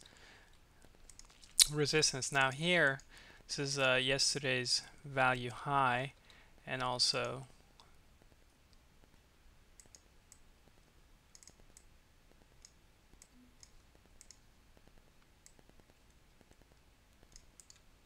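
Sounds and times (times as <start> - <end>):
faint computer mouse clicks: 9.8 - 10.4.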